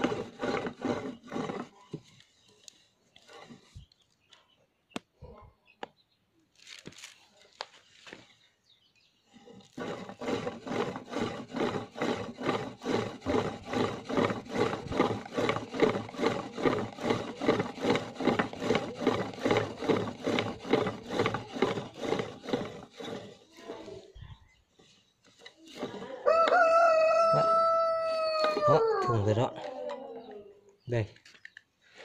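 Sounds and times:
pump drill grinding stone: 0:00.0 - 0:02.2, 0:03.1 - 0:03.9, 0:09.3 - 0:24.2, 0:25.2 - 0:29.5.

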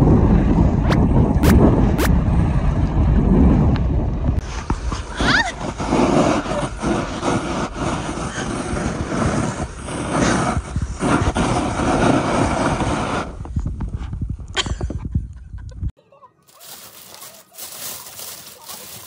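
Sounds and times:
snowboard scraping on icy snow: 0:05.6 - 0:13.4, 0:16.5 - 0:19.0.

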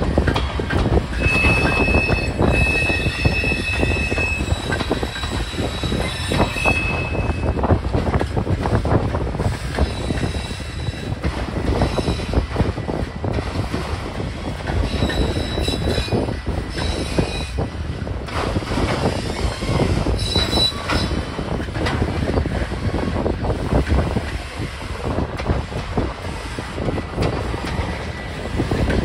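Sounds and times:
train wheels clattering on rails: 0:00.0 - 0:29.0
wheel squeals: 0:01.1 - 0:07.6, 0:09.7 - 0:11.2, 0:14.4 - 0:17.7, 0:19.0 - 0:21.3.

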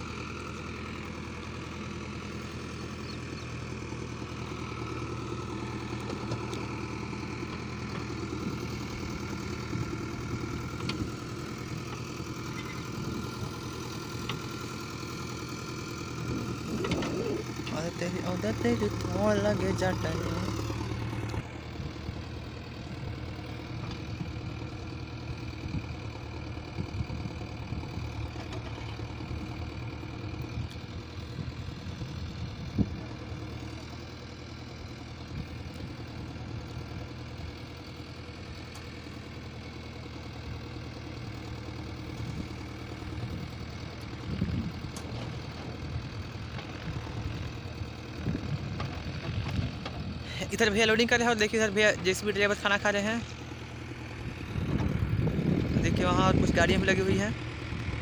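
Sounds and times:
diesel engines idling: 0:00.0 - 0:58.0.

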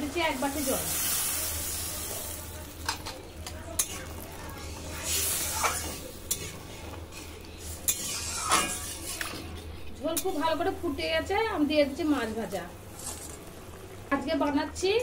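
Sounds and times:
gravy sizzling: 0:00.0 - 0:15.0
metal spatula scraping a pan: 0:03.8 - 0:10.4.

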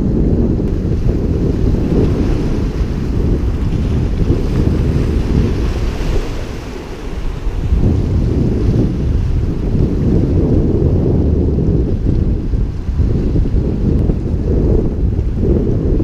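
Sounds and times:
wind buffeting microphone: 0:00.0 - 0:16.0
surf breaking against rocks: 0:00.5 - 0:10.7.

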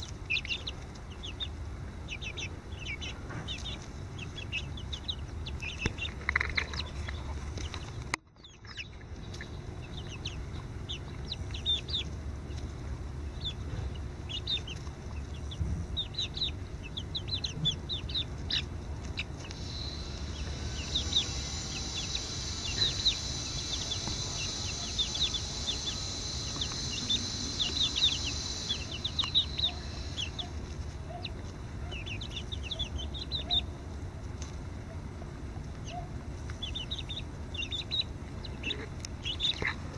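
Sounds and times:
chicks peeping: 0:00.0 - 0:39.9
steady high hiss: 0:19.2 - 0:31.0.

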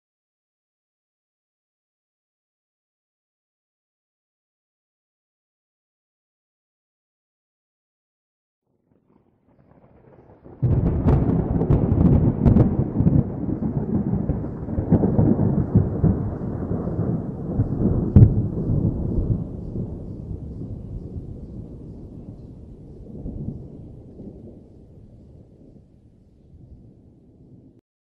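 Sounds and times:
thunder-like boom and rumble: 0:09.8 - 0:25.8.

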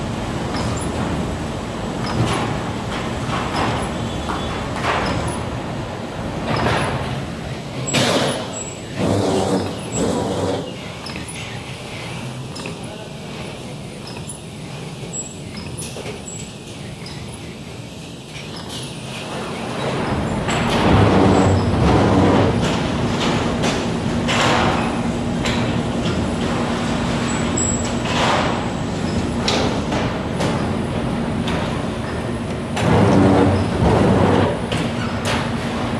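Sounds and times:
machine clanks: 0:02.0 - 0:05.6.

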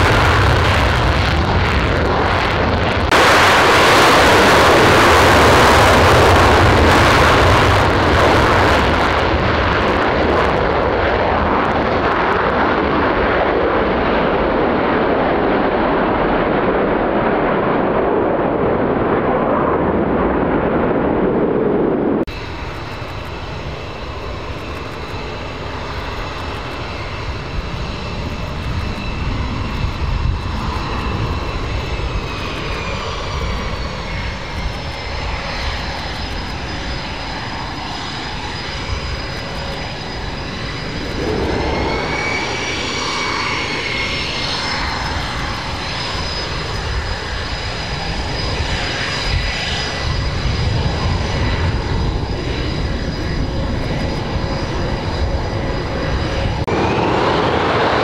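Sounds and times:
jet engine rumble and whine: 0:00.0 - 0:58.0.

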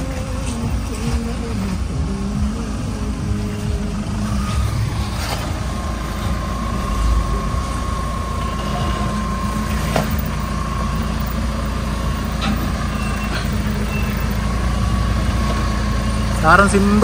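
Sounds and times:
suv engine running at low revs: 0:00.0 - 0:17.0
steady high-pitched tone: 0:01.9 - 0:15.3.

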